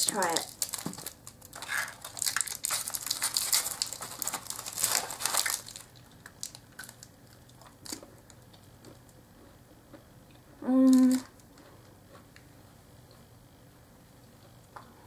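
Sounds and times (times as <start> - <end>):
plastic wrapper crinkling: 0.0 - 8.1.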